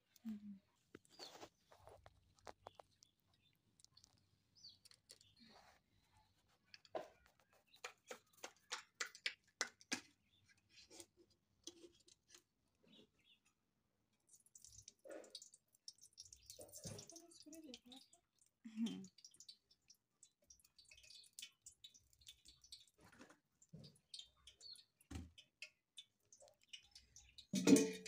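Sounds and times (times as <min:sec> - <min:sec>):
faint sharp clicks and ticks: 0:14.3 - 0:27.5.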